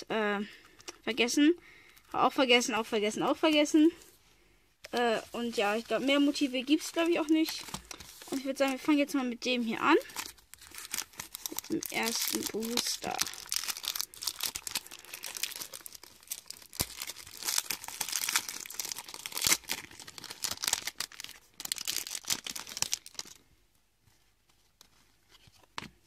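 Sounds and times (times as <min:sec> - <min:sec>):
foil wrapper tearing and crinkling: 0:10.0 - 0:23.4.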